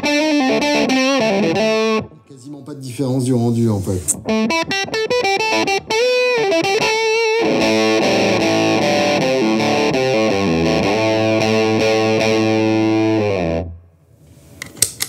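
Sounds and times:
fuzzed electric guitar: 0.0s - 2.3s, 4.1s - 13.8s.

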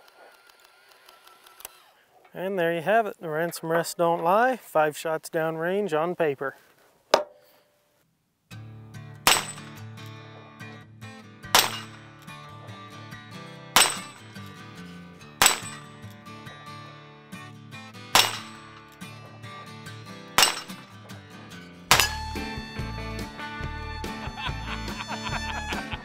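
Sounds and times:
background music: 8.5s - 26.0s
revolver shots: 9.3s - 9.8s, 11.6s - 12.0s, 13.8s - 14.4s, 15.4s - 15.9s, 18.2s - 18.8s, 20.4s - 20.8s, 21.9s - 22.4s
steel plate targets ringing: 9.3s - 9.8s, 11.6s - 12.1s, 13.8s - 14.4s, 15.4s - 16.0s, 18.2s - 18.8s, 20.4s - 20.9s, 21.9s - 22.4s.

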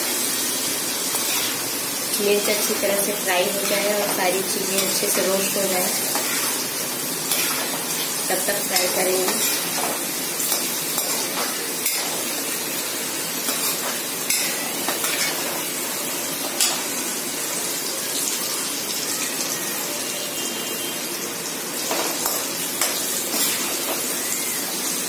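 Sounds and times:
oil sizzling in a metal pan: 0.0s - 25.0s
metal spoon scraping a pan: 1.1s - 1.6s, 2.4s - 12.3s, 13.5s - 15.6s, 21.9s - 24.1s.

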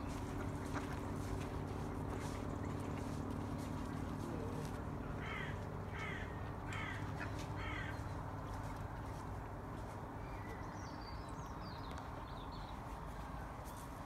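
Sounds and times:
low mechanical hum: 0.0s - 14.0s
crow cawing: 5.2s - 8.0s.

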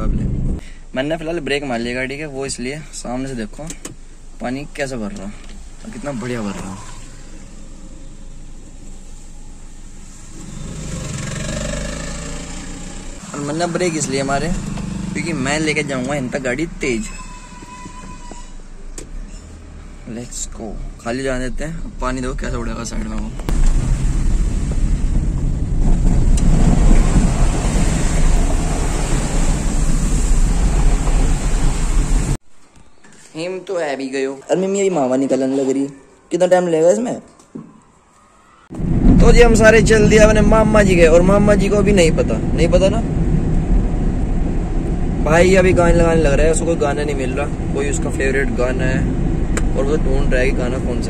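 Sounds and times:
car engine hum: 3.4s - 17.0s, 18.7s - 32.4s, 38.8s - 51.0s
tyre hiss on wet road: 5.6s - 13.6s, 26.7s - 32.4s
vehicles passing through water: 23.6s - 32.4s.

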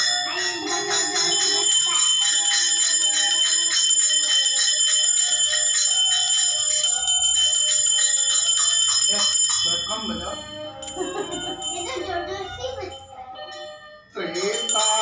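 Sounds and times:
bell-like high tones: 0.0s - 15.0s
electronic keyboard melody: 9.1s - 15.0s.

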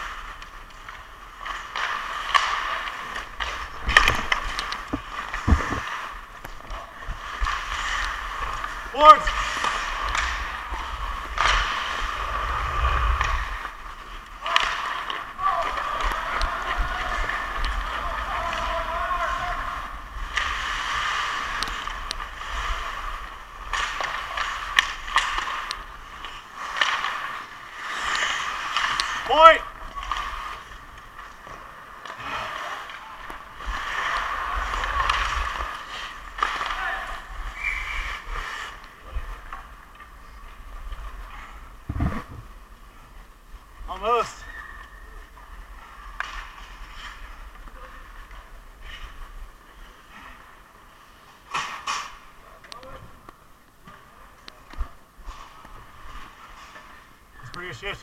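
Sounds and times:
hockey sticks and puck clacking: 0.0s - 42.0s, 44.0s - 58.0s
skates scraping on ice: 0.0s - 53.2s, 53.8s - 58.0s
hockey stick clicks: 0.3s - 6.8s, 23.6s - 29.3s, 46.0s - 47.2s, 51.5s - 53.4s
low thumps: 3.8s - 5.8s, 41.8s - 42.6s.

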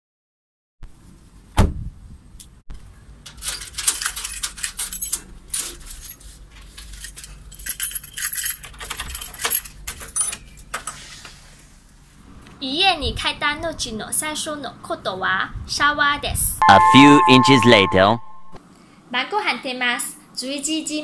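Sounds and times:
keys jangling: 7.0s - 10.4s.

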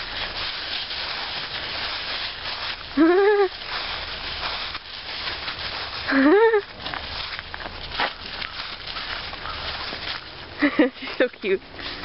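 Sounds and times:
dry leaves crunching underfoot: 0.0s - 12.0s.

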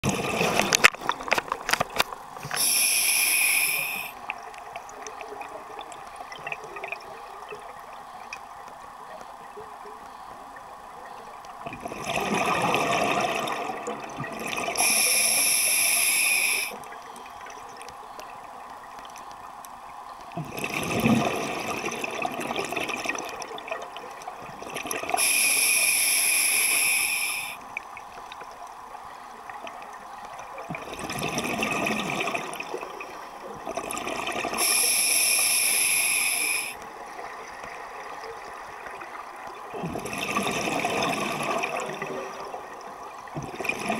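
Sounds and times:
gurgling exhaled bubbles: 0.0s - 1.4s, 11.6s - 15.2s, 20.4s - 25.5s, 30.6s - 43.9s
hissing regulator inhalation: 2.4s - 4.2s, 14.8s - 16.8s, 25.2s - 27.6s, 34.6s - 36.8s.

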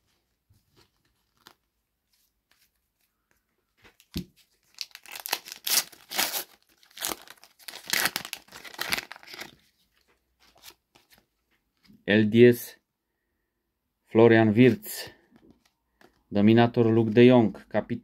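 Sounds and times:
foil wrapper tearing and crinkling: 4.6s - 9.6s.

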